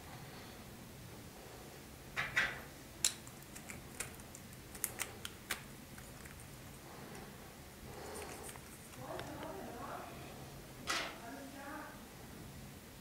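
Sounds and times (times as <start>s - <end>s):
plastic rubbing: 3.2s - 9.6s.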